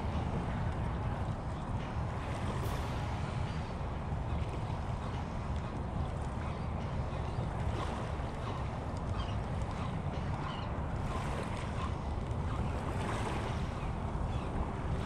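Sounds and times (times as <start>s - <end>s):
wind rumble on microphone: 0.0s - 15.0s
small waves washing ashore: 11.0s - 15.0s.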